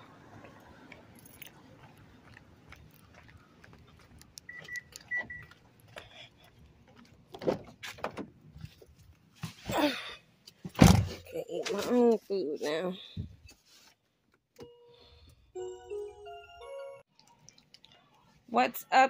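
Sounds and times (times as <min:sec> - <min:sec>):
car keys jangling: 0:01.1 - 0:01.6.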